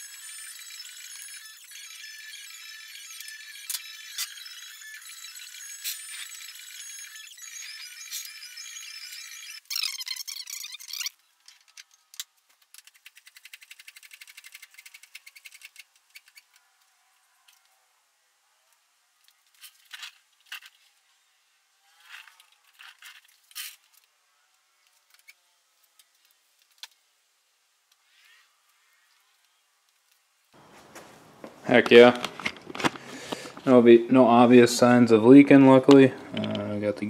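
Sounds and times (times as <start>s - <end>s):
squeaky hand pump strokes: 0.0s - 11.2s.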